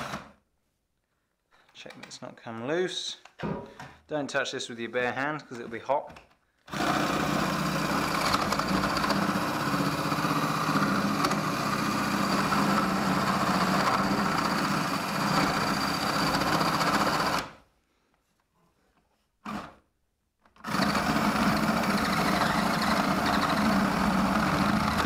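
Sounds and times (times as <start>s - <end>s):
drill boring through wood: 0.0s - 0.4s, 6.7s - 17.6s, 19.5s - 19.8s, 20.6s - 25.0s.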